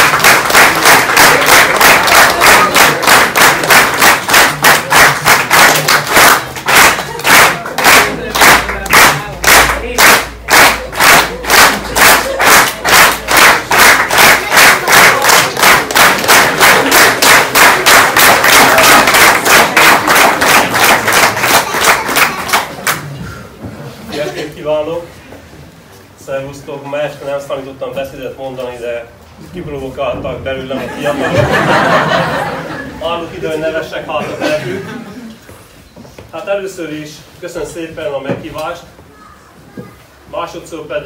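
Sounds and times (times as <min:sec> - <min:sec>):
crowd cheering: 0:00.0 - 0:08.2, 0:11.3 - 0:23.0
audience clapping in unison: 0:00.0 - 0:23.1.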